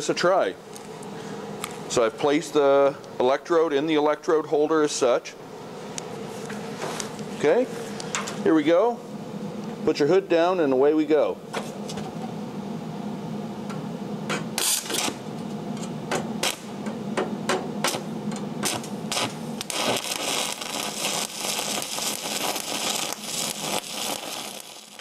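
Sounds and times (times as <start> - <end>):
welding arc crackling: 14.3 - 25.0.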